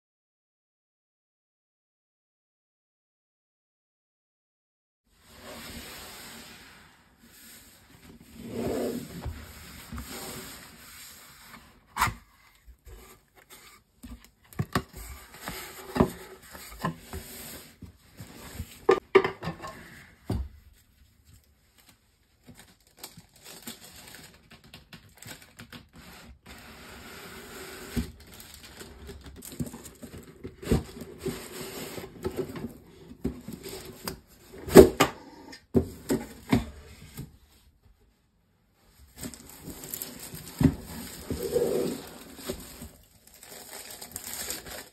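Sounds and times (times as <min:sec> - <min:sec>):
cardboard scraping and rubbing: 0:05.2 - 0:19.0, 0:39.0 - 0:44.9
tissue paper rustling: 0:20.7 - 0:24.4, 0:38.9 - 0:44.9.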